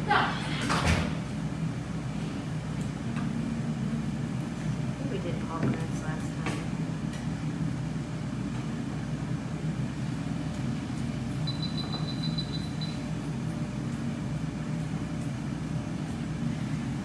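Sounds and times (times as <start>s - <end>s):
low mechanical hum: 0.0s - 17.0s
high electronic beeps: 11.4s - 13.0s.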